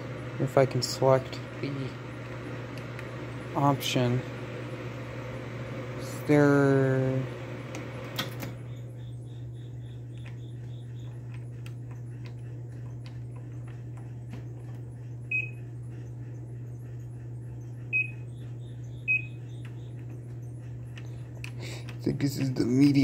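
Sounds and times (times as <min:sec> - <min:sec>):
steady low hum: 0:00.0 - 0:23.0
microwave keypad beeps: 0:15.3 - 0:15.6, 0:17.9 - 0:18.2, 0:19.0 - 0:19.4.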